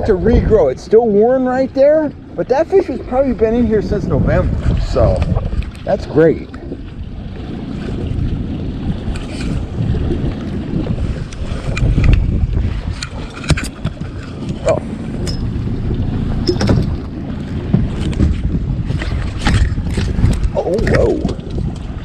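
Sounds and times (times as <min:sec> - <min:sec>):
outboard motor running: 0:00.0 - 0:22.0
wind buffeting microphone: 0:00.0 - 0:22.0
sharp knocks and clicks: 0:16.4 - 0:18.4.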